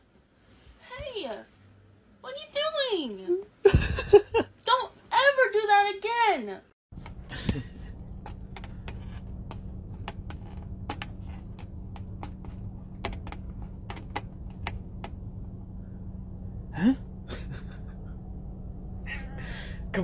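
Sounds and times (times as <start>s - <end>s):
low car cabin hum: 7.0s - 20.0s.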